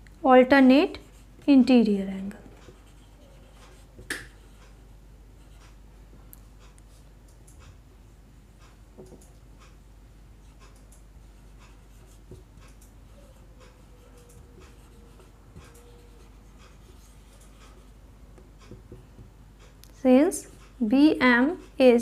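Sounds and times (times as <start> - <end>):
marker scratching on whiteboard: 2.5 - 5.8, 10.4 - 19.3.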